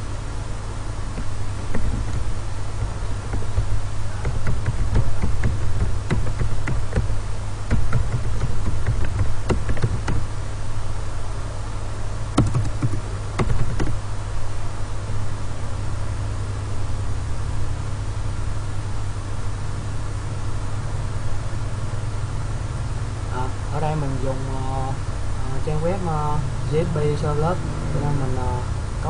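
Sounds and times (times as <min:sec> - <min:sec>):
steady low hum: 0:00.0 - 0:29.0
keyboard key clicks: 0:01.7 - 0:07.1, 0:07.7 - 0:10.2, 0:12.4 - 0:14.0.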